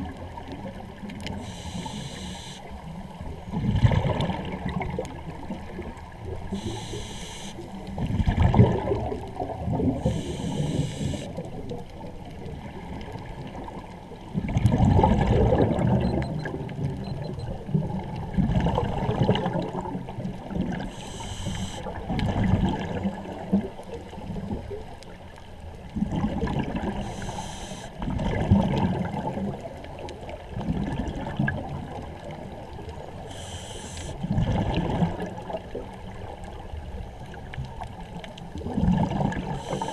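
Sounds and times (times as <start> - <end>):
exhale bubbling gurgle: 0.0 - 39.9
regulator inhale hiss: 1.3 - 2.8, 6.5 - 7.8, 9.9 - 11.4, 20.8 - 22.0, 27.0 - 28.0, 33.2 - 34.2, 39.5 - 39.9.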